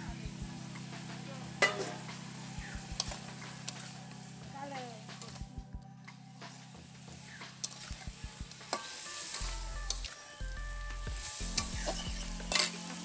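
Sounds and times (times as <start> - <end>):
meat and potatoes sizzling in oil: 0.0 - 5.4, 6.4 - 13.0
metal spatula scraping: 1.6 - 2.0, 7.6 - 10.2, 11.2 - 13.0.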